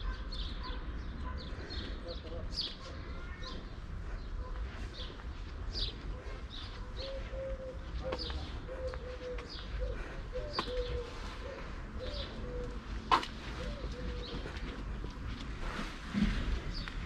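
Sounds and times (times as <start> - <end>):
small birds chirping: 0.0 - 15.4
pigeon cooing: 7.0 - 12.8, 13.4 - 14.5.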